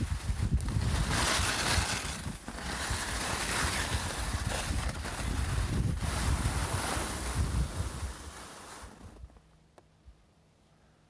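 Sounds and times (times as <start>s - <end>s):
wind buffeting microphone: 0.0s - 8.4s
skis sliding over snow: 0.0s - 9.4s.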